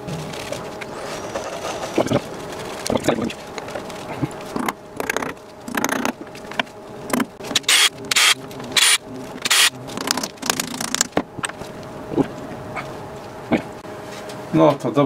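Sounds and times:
metal scraping: 0:00.0 - 0:06.0.

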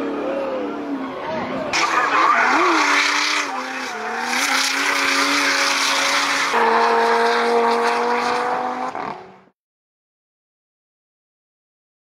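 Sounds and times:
car engine at high revs: 0:01.7 - 0:09.5
tyre squeal: 0:01.8 - 0:06.7.

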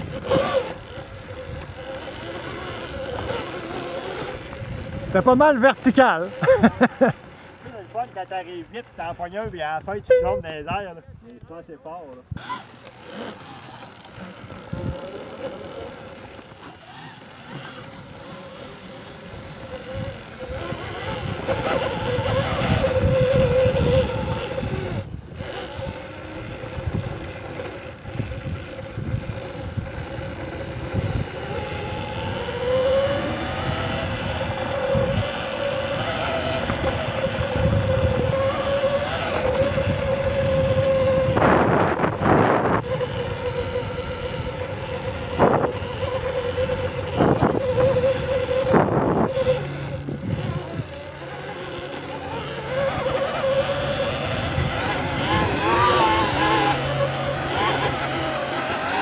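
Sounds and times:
wind buffeting microphone: 0:00.0 - 0:05.4, 0:19.2 - 0:59.0
electric motor whine: 0:00.0 - 0:10.7, 0:12.2 - 0:59.0.

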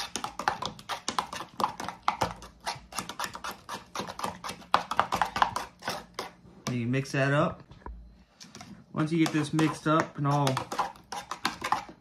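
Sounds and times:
spoon stirring clicking on cup: 0:08.5 - 0:12.0.

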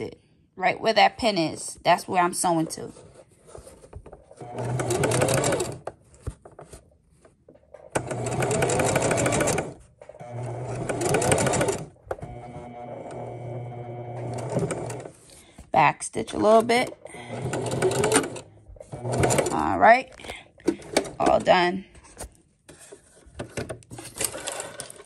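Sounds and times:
sewing machine stitching: 0:04.3 - 0:06.0, 0:07.8 - 0:15.3, 0:16.4 - 0:19.9, 0:23.9 - 0:25.0.

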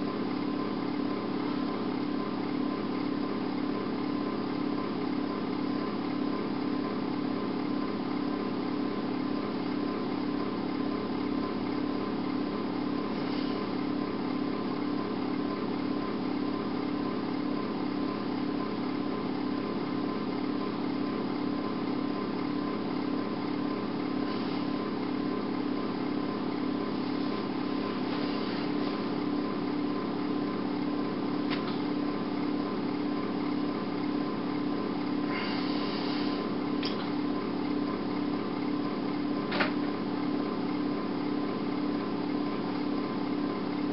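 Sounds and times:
steady low drone hum: 0:10.8 - 0:42.9.

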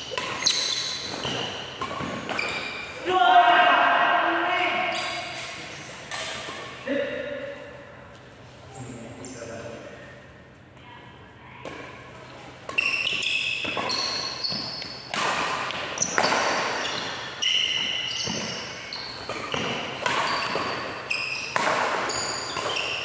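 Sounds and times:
rackets hitting shuttlecock: 0:00.0 - 0:03.0, 0:12.6 - 0:23.0
shoes squeaking on court: 0:00.0 - 0:03.0, 0:07.6 - 0:10.7, 0:11.7 - 0:23.0.

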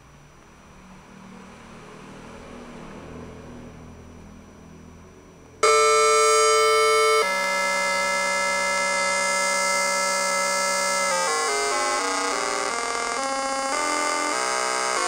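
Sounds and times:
synthesised electronic tone: 0:05.6 - 0:15.0.

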